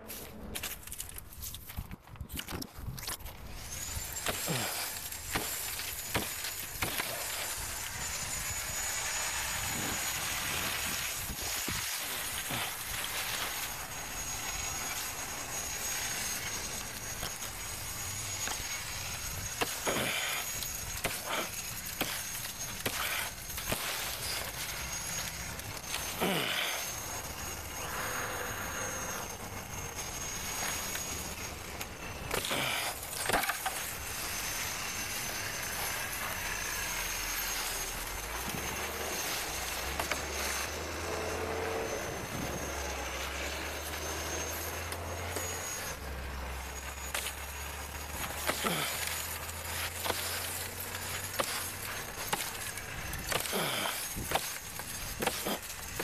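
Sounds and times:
branches cracking and snapping: 0:00.0 - 0:08.4, 0:30.3 - 0:36.7, 0:37.4 - 0:42.0, 0:46.5 - 0:56.0
rustling leaves: 0:00.0 - 0:56.0.

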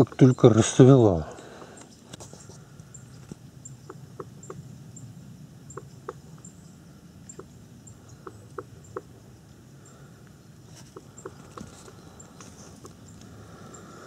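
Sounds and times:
woodpecker pecking at tree: 0:08.1 - 0:09.2, 0:10.8 - 0:13.3.

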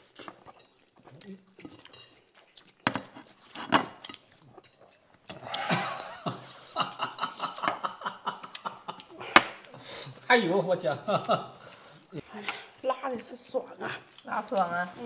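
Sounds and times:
people laughing: 0:05.3 - 0:09.4, 0:10.7 - 0:11.7.

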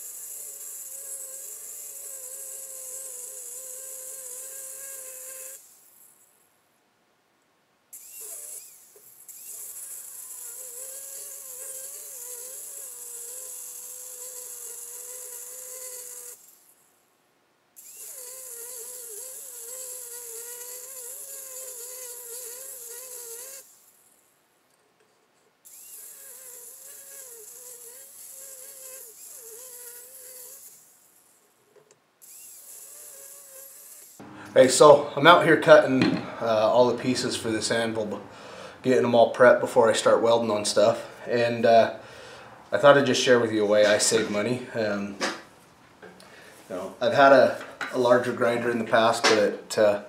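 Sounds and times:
angle grinder cutting steel: 0:00.0 - 0:05.7, 0:08.0 - 0:16.5, 0:17.8 - 0:23.7, 0:25.7 - 0:30.8.

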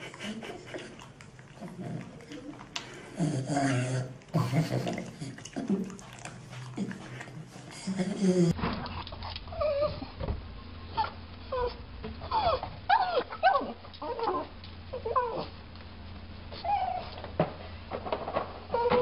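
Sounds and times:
dog whining: 0:09.5 - 0:10.2, 0:11.0 - 0:15.6, 0:16.5 - 0:17.2, 0:18.6 - 0:19.0.

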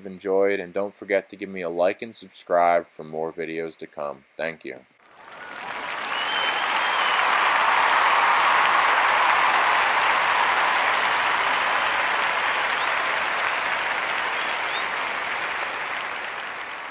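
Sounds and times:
crowd applauding: 0:05.0 - 0:16.9.

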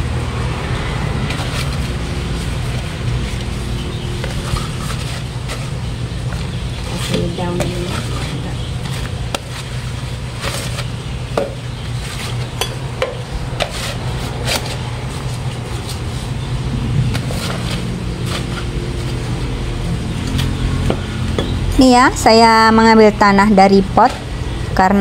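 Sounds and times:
steady low rumble: 0:12.5 - 0:25.0.

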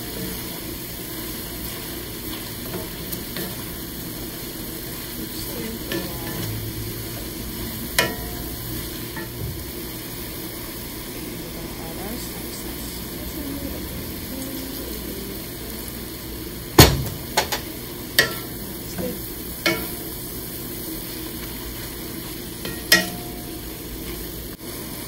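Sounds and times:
vegetables sizzling in a pan: 0:00.0 - 0:25.0
wooden spatula knocking pan: 0:22.7 - 0:23.4.

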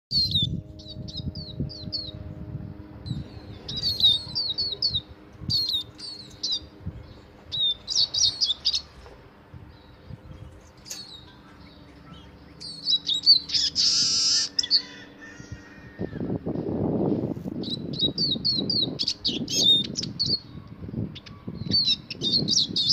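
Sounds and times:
bird twittering chirps: 0:00.1 - 0:02.3, 0:03.0 - 0:16.6, 0:17.6 - 0:22.9
bird buzzy wheeze: 0:13.5 - 0:15.6.

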